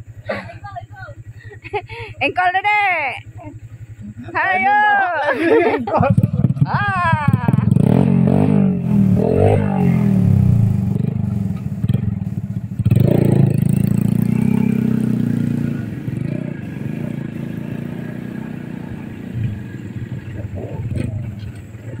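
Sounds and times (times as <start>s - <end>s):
small motorcycle engine revving: 3.2s - 22.0s.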